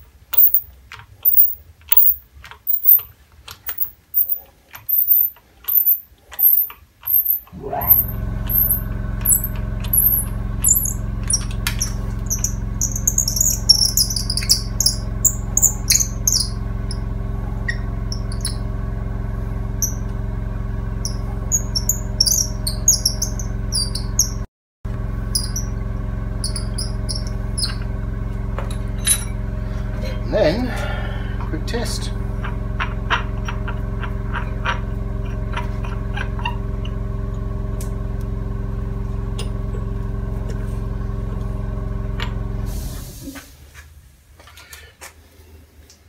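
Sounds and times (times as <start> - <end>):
high chirps: 3.7 - 18.6, 21.0 - 24.4, 26.4 - 27.9
electric motor humming: 7.1 - 43.2.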